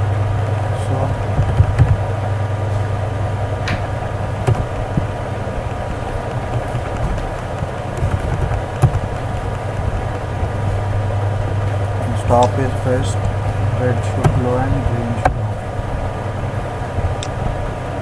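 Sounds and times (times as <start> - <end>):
low background hum: 0.0 - 18.0
keyboard clicks: 1.4 - 2.0, 4.4 - 4.8, 5.6 - 10.3.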